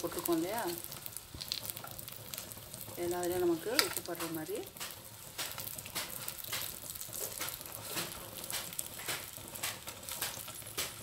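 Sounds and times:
peppers sizzling in pan: 0.0 - 11.0
knife tapping and scraping pan: 3.7 - 11.0.

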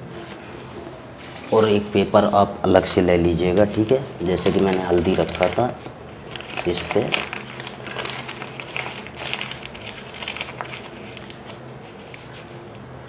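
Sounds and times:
paper crinkling and rustling: 3.6 - 12.8.

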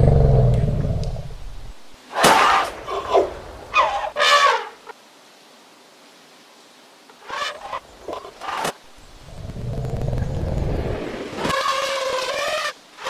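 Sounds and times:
low rumbling: 0.0 - 2.0, 8.8 - 11.4.

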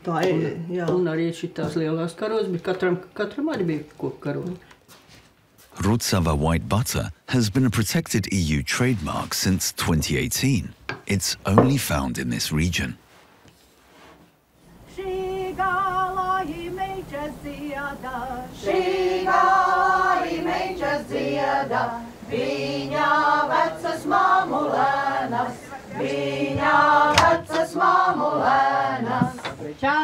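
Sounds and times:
choir singing unaccompanied: 14.9 - 30.0.

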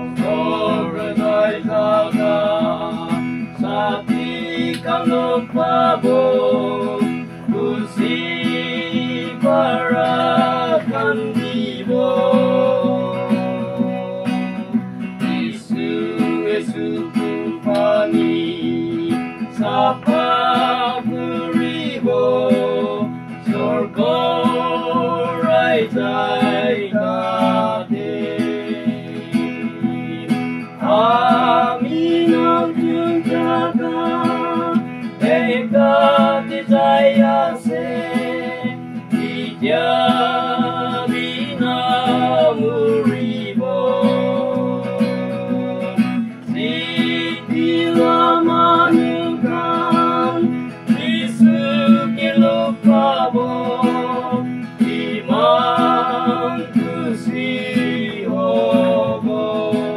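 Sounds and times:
acoustic guitar: 0.0 - 59.9
voices singing worship song: 0.0 - 59.9.

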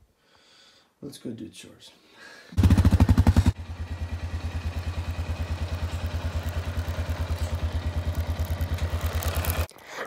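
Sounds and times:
engine idling: 2.6 - 9.7.

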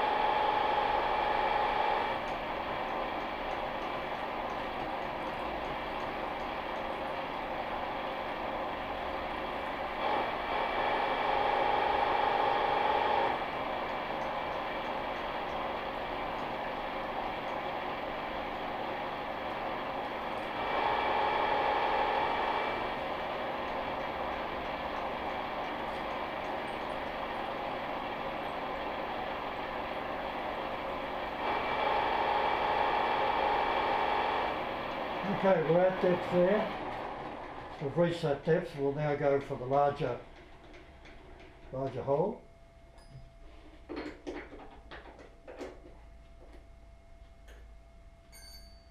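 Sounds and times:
milling machine drilling steel: 0.0 - 38.1
steady ringing tone: 42.1 - 43.8, 45.2 - 48.9.

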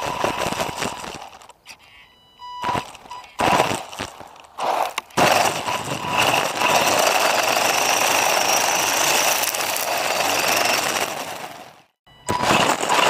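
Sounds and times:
chassis rattle: 2.6 - 13.0.

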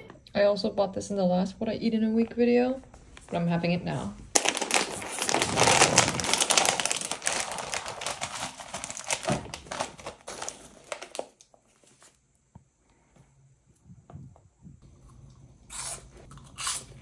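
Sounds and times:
snack bag crinkling: 4.3 - 11.7.

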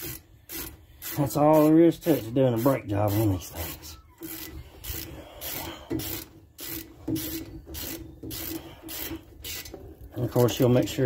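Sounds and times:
hand ratchet ratcheting: 0.0 - 10.8.

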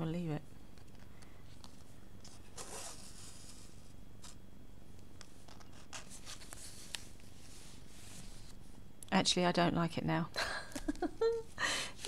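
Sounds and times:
scratchy strokes: 2.5 - 4.4.

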